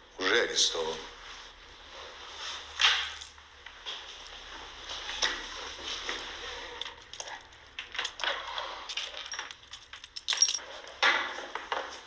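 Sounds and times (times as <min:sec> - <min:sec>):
handling clicks taps and rustles: 0:06.8 - 0:10.6.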